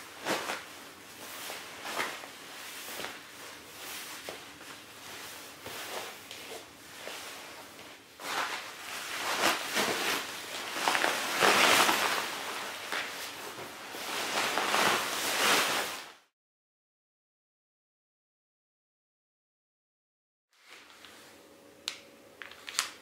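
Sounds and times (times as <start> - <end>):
sleeping bag fabric rustling: 0.0 - 16.2.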